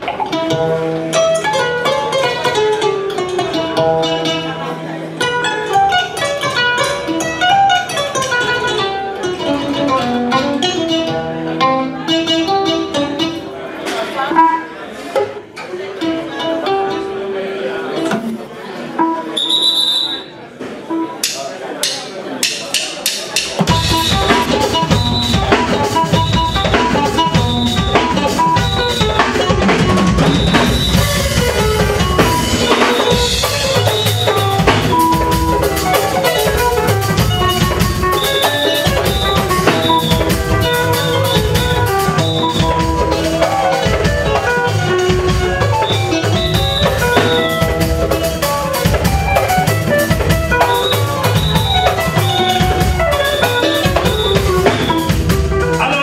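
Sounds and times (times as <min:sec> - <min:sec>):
hand drums: 0:00.0 - 0:15.4, 0:20.9 - 0:56.0
amplified kora melody: 0:00.0 - 0:56.0
drum kit beat: 0:20.9 - 0:56.0.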